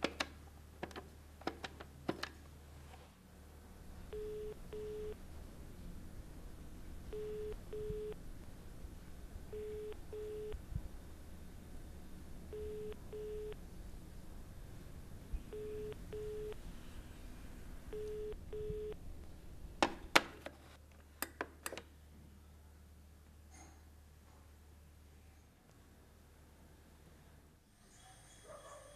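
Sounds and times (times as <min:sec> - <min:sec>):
telephone ringing tone: 0:04.1 - 0:05.2, 0:07.2 - 0:08.2, 0:09.5 - 0:10.6, 0:12.5 - 0:13.6, 0:15.6 - 0:16.6, 0:17.9 - 0:19.0.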